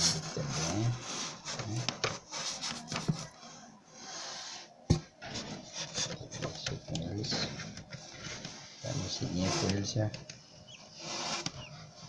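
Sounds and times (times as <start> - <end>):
handling rubbing and scraping: 0.0 - 12.0.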